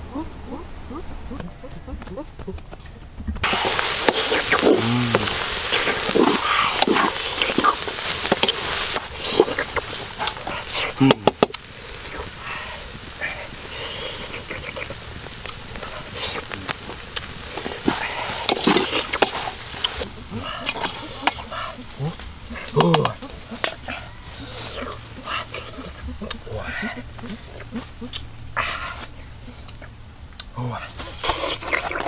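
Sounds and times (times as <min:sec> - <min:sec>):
food sizzling in pot: 0:03.4 - 0:26.3.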